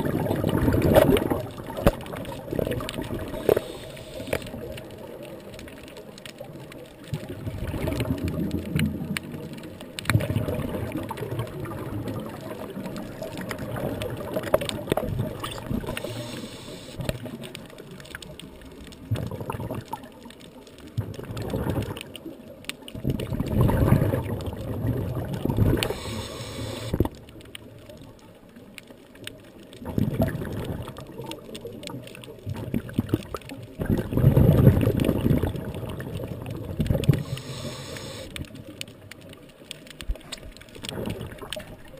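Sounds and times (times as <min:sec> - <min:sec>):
exhaled bubbles gurgling underwater: 0:00.0 - 0:41.9.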